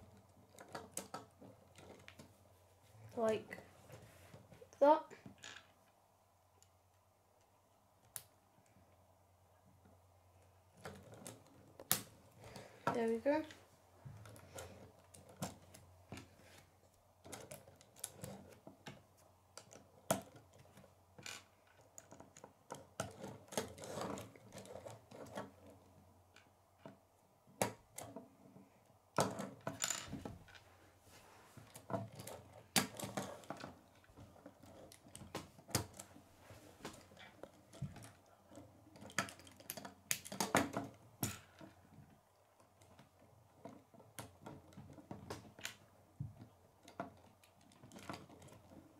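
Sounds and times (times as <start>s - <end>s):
plastic pieces clicking together: 37.4s - 41.7s.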